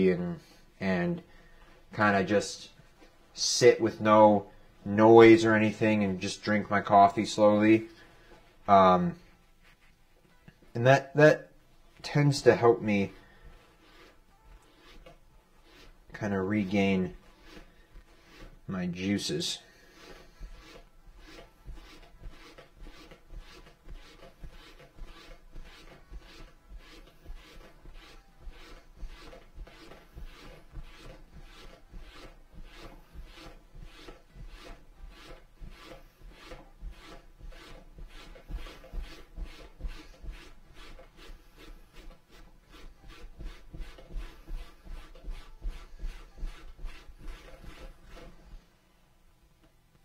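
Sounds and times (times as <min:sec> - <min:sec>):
hand rubbing on leather: 0:09.5 - 0:10.0, 0:12.0 - 0:48.6.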